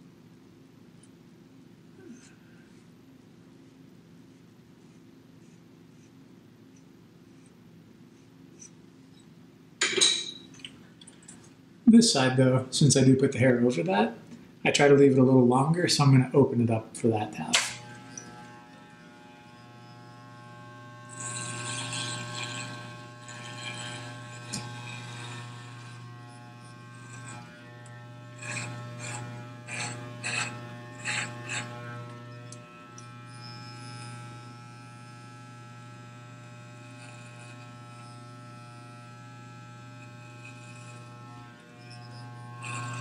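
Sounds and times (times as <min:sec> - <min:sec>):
electric hair clippers buzzing: 0:17.4 - 0:43.0.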